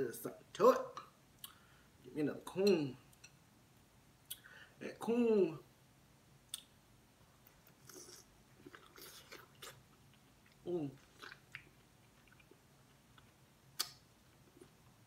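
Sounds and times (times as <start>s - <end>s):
wet mouth noises: 7.5s - 14.8s.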